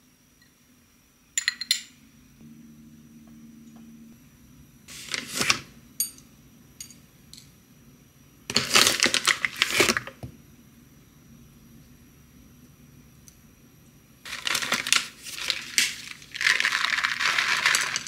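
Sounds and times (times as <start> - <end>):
spoon clinking on ceramic plate: 1.4 - 2.0
crackling rustles: 14.3 - 18.0.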